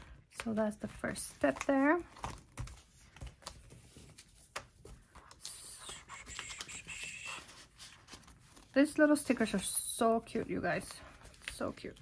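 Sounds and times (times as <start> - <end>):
scratchy paper rustling: 0.0 - 12.0.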